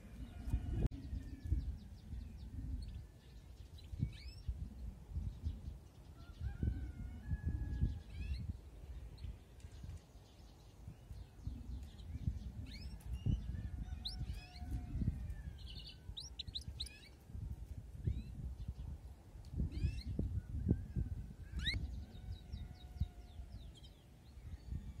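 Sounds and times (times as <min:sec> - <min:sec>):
canary chirping and trilling: 0:12.6 - 0:14.8, 0:15.6 - 0:17.2, 0:21.5 - 0:21.9.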